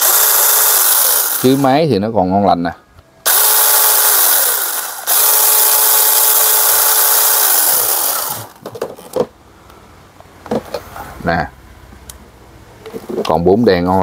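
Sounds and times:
mini chainsaw motor whining: 0.0s - 1.7s, 3.3s - 8.6s.

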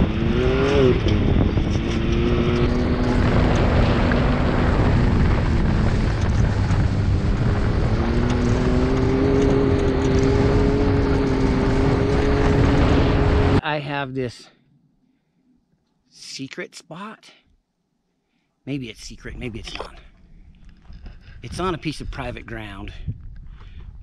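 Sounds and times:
off-road vehicle engine revving: 0.0s - 13.6s
wind and tyre noise: 0.0s - 13.6s, 19.2s - 24.0s.

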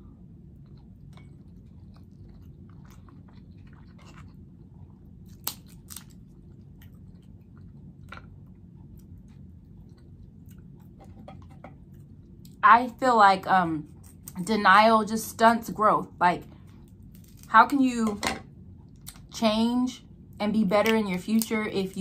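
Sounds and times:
person chewing with wet mouth sounds: 0.0s - 11.2s.

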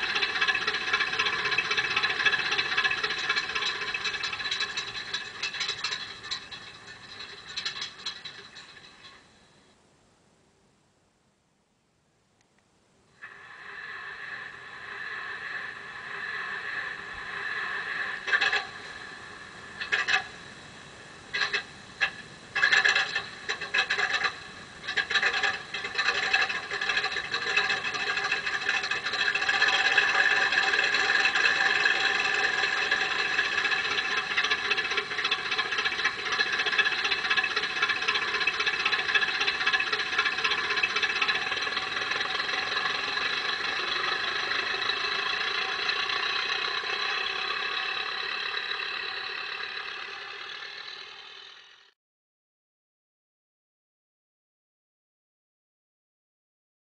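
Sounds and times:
clicks and rattles: 0.0s - 9.3s, 17.2s - 19.1s, 19.8s - 20.5s, 21.3s - 50.8s
recorded engine sound from loudspeaker: 0.0s - 9.7s, 13.2s - 51.9s.

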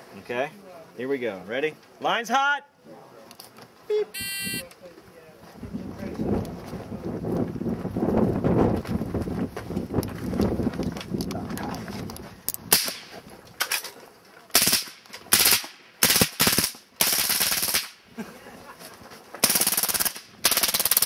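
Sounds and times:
machine gun firing bursts: 14.5s - 18.0s, 19.4s - 21.0s.

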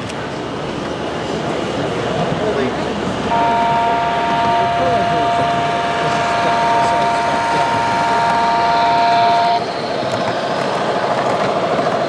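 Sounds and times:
model train running: 0.0s - 12.0s
model train whistle: 3.3s - 9.8s.

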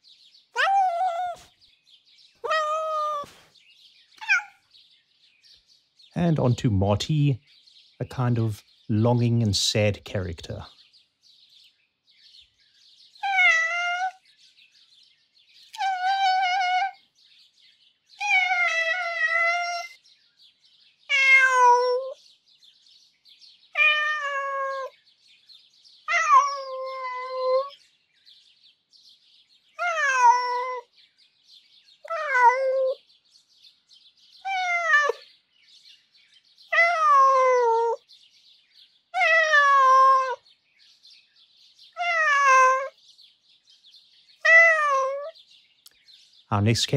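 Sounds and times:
cat meowing: 0.6s - 1.5s, 2.4s - 3.4s, 4.2s - 4.6s, 13.2s - 14.2s, 15.7s - 17.0s, 18.2s - 20.0s, 21.1s - 22.2s, 23.7s - 24.9s, 26.0s - 27.7s, 29.8s - 30.9s, 32.0s - 33.0s, 34.4s - 35.2s, 36.7s - 38.0s, 39.2s - 40.4s, 42.0s - 43.0s, 44.4s - 45.4s.

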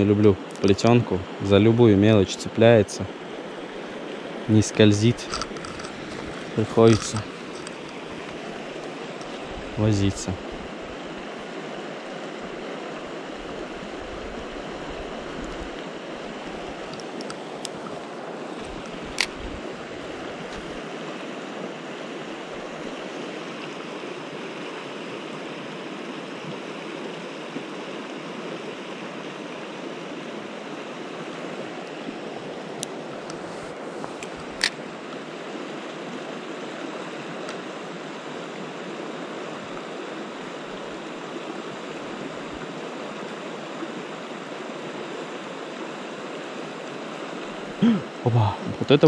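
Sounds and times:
sharp clicks: 5.2s - 8.4s.

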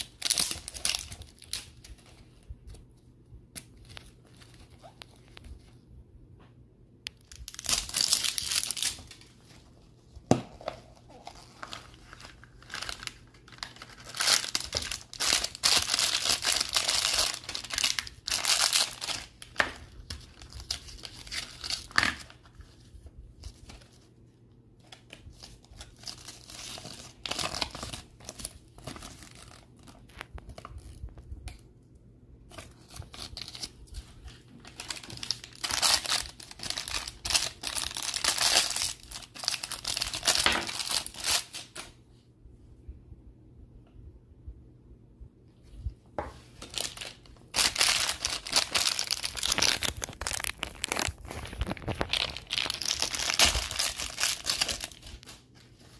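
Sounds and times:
plastic wrappers crinkling and tearing: 0.0s - 2.8s, 7.2s - 9.6s, 10.6s - 22.8s, 24.8s - 31.6s, 32.5s - 41.9s, 46.6s - 55.9s.

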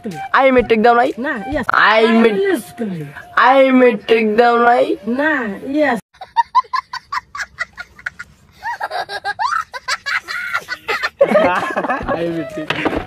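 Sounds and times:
small child laughing: 6.2s - 12.7s.

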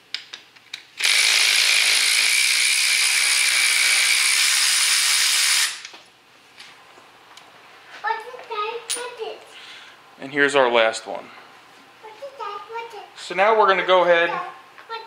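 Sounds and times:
cordless electric ratchet running: 1.0s - 5.9s.

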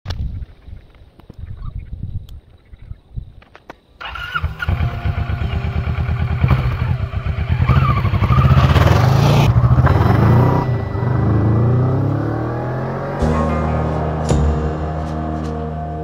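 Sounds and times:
motorcycle engine revving: 4.0s - 15.2s.

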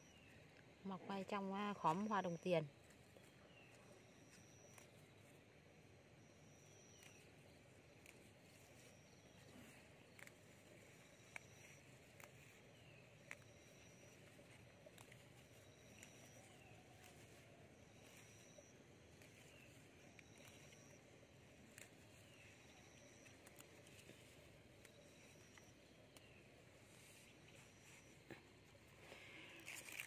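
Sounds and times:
faint high animal call: 27.1s - 30.0s.

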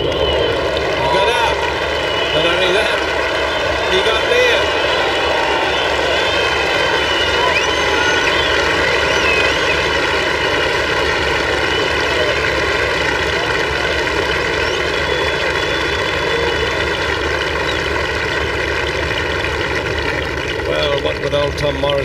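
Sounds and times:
voices calling out: 0.0s - 18.0s
crowd cheering and applauding: 0.0s - 22.0s.

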